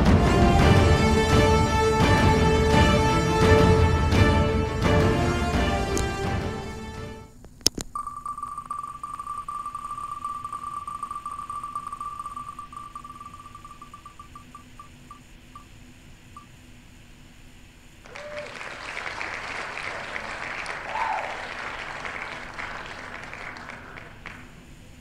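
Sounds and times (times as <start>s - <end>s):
spinning wheel ticking: 8.0s - 15.7s
recorded applause: 18.0s - 24.8s.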